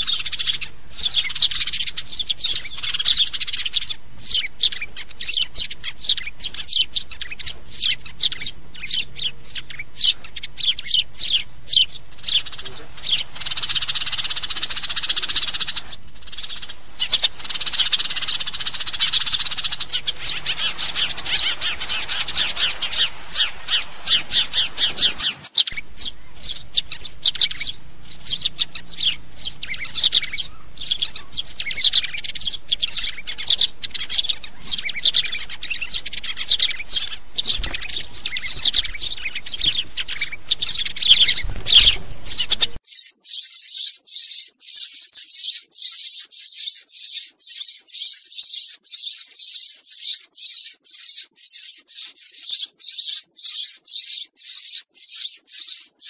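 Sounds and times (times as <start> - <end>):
sparrows chirping: 0.0 - 56.0.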